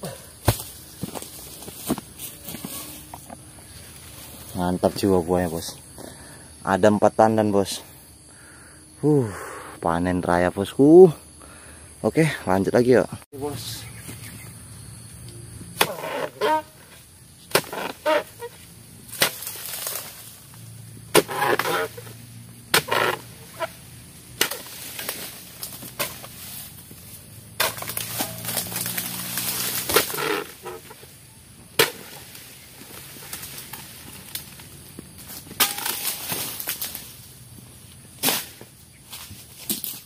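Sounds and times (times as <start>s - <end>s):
chisel chopping palm fronds: 0.4s - 2.0s, 15.8s - 16.6s, 17.5s - 18.4s, 19.1s - 20.4s, 21.1s - 26.7s, 27.6s - 31.0s, 31.7s - 34.6s, 35.2s - 37.2s, 38.2s - 40.0s.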